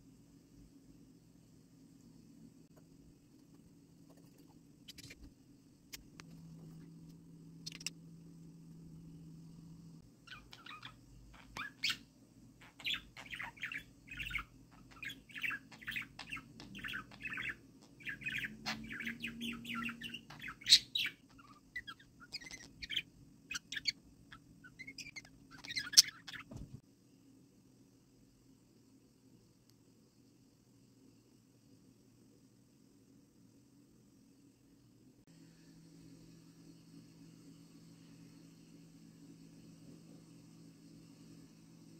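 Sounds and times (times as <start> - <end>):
budgerigar chirping: 10.3 - 26.5.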